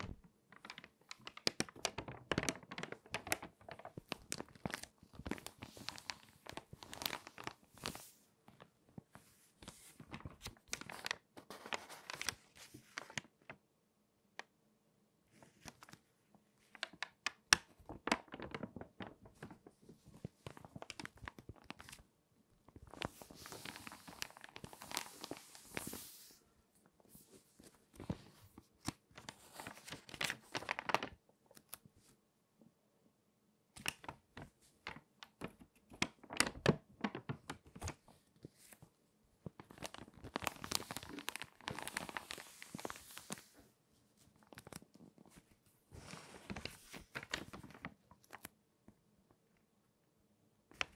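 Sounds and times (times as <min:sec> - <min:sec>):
crinkly pages rustling: 0:00.0 - 0:13.6, 0:15.3 - 0:32.2, 0:33.8 - 0:48.6.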